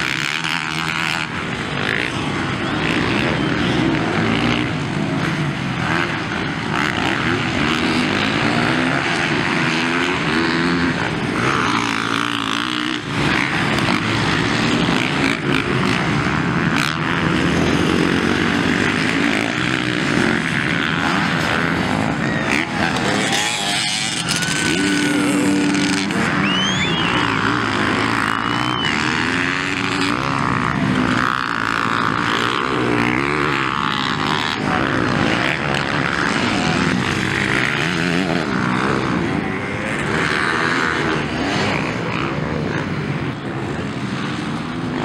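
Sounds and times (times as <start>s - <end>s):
dirt bike engines revving: 0.0s - 45.0s.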